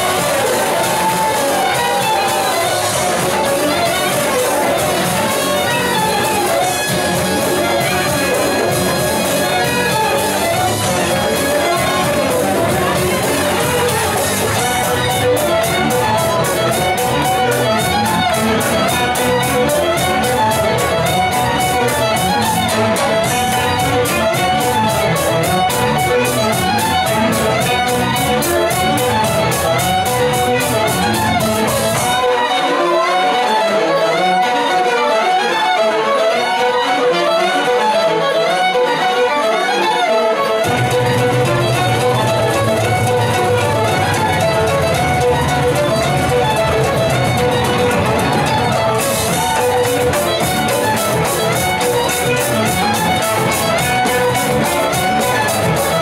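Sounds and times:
tuba: 0.0s - 34.2s
fiddles: 0.0s - 56.0s.

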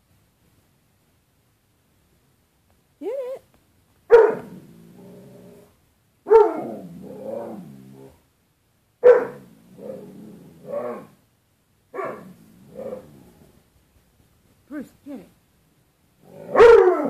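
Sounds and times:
dog barking: 4.1s - 4.6s, 6.3s - 6.8s, 9.0s - 9.5s, 11.9s - 13.0s, 16.5s - 17.0s
dog moaning: 6.4s - 8.2s, 12.0s - 13.6s.

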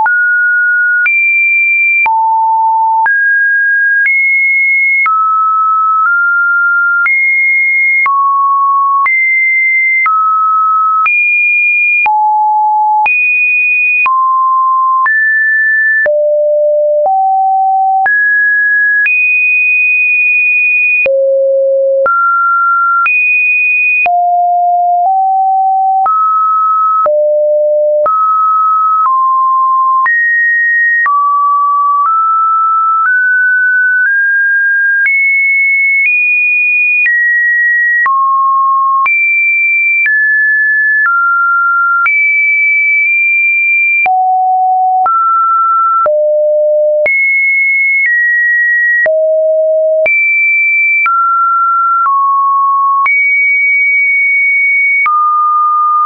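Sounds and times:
sine test tone beeps: 0.0s - 1.2s, 1.9s - 3.2s, 11.9s - 13.1s, 16.0s - 18.3s, 21.0s - 23.1s, 24.0s - 33.9s, 43.9s - 47.2s, 49.0s - 50.2s.

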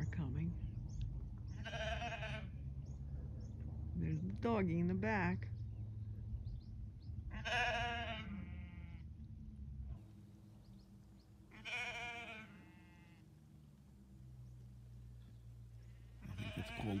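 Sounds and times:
sheep bleating: 1.5s - 2.5s, 7.3s - 9.0s, 11.5s - 13.2s, 15.9s - 17.0s.

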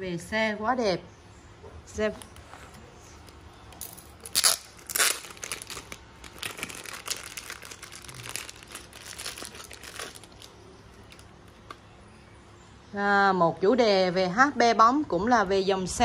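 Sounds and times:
plastic wrap crinkling: 3.2s - 11.8s.

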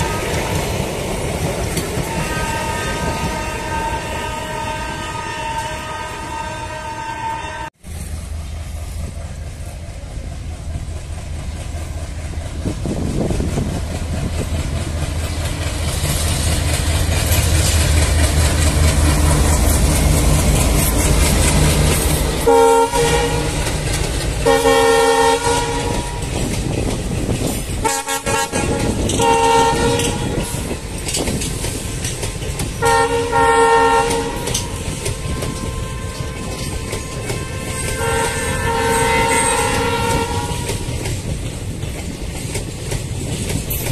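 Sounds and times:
train horn blasts: 0.0s - 1.0s, 1.9s - 8.0s, 18.9s - 26.6s, 27.8s - 30.9s, 32.8s - 41.0s
train coaches rolling on rails: 0.0s - 43.9s
locomotive engine rumble: 7.8s - 43.9s.

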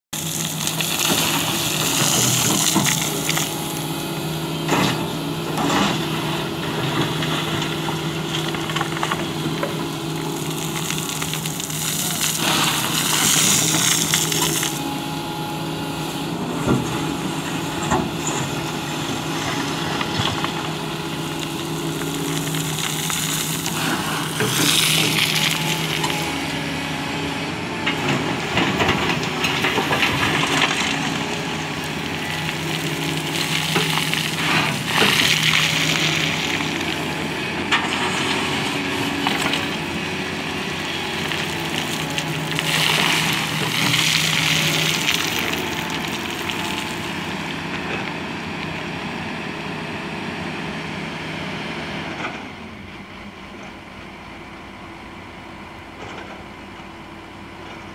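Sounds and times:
excavator diesel engine running: 0.1s - 57.9s
grinding rattling gravel: 0.2s - 14.8s, 16.9s - 26.8s, 27.8s - 48.8s.

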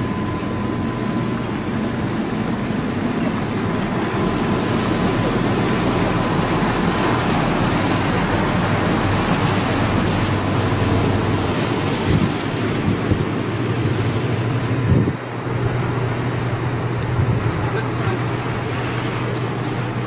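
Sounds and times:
faint steady whine: 0.0s - 11.9s
boat engines running: 0.0s - 20.0s
water rushing along hull: 0.0s - 20.0s.

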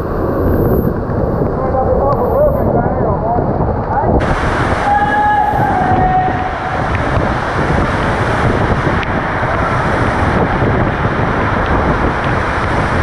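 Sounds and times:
waterfall rushing: 4.2s - 13.0s.

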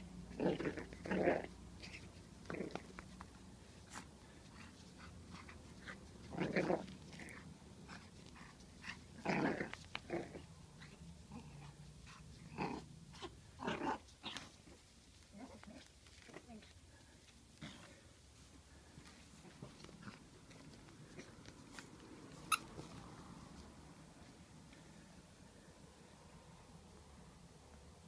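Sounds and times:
puppy growling: 0.2s - 16.7s.

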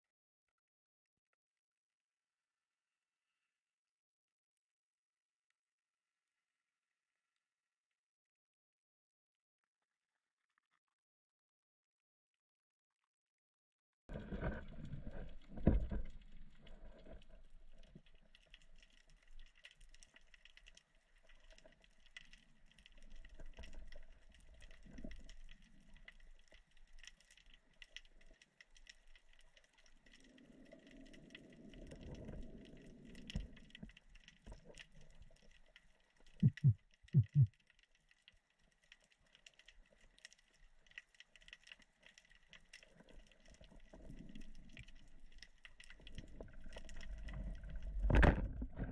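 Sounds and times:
faint crackling clicks underwater: 14.1s - 48.9s
low rumble: 36.4s - 37.5s.

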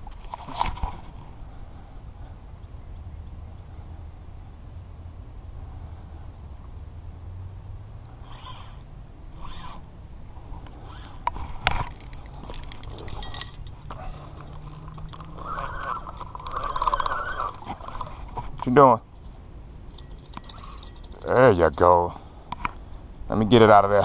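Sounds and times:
fishing reel zipping: 8.2s - 9.9s, 10.6s - 18.1s
rapid clicking of fishing rod: 9.4s - 9.8s, 10.8s - 18.1s.

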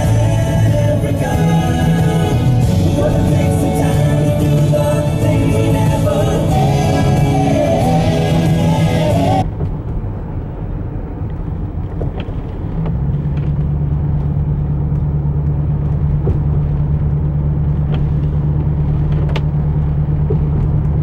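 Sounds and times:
low drone: 0.0s - 11.9s
car road noise rumble: 0.0s - 21.0s.

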